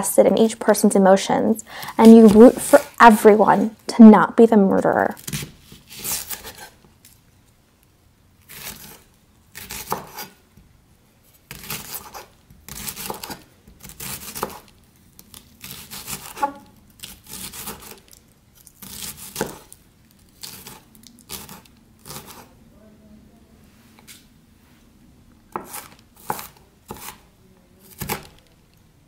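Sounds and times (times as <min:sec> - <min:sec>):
knife chopping on wooden board: 0:09.6 - 0:10.4, 0:11.5 - 0:14.6, 0:15.6 - 0:18.0, 0:18.8 - 0:19.7, 0:20.4 - 0:22.4, 0:25.5 - 0:27.2, 0:27.9 - 0:28.4.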